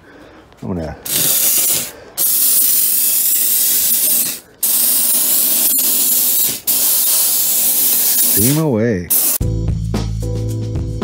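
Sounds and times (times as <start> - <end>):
steam cleaner hissing: 1.1 - 9.4.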